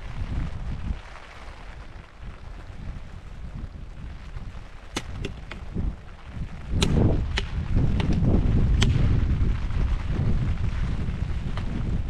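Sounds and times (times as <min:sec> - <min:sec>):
wind rumble on microphone: 0:00.0 - 0:12.0
dry branches snapping: 0:04.9 - 0:09.4.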